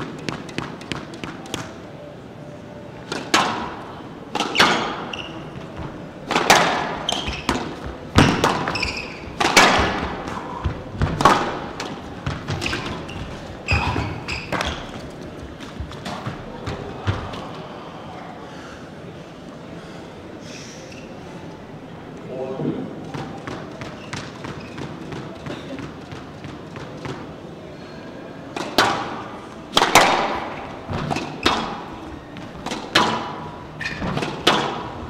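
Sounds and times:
squash ball struck by rackets: 3.1s - 15.0s, 28.6s - 35.0s
ball smacking off walls: 6.3s - 14.8s.

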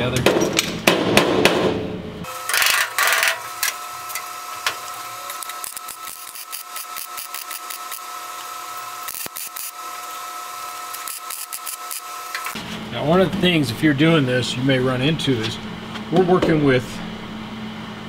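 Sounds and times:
welding hum and crackle: 2.2s - 12.6s.

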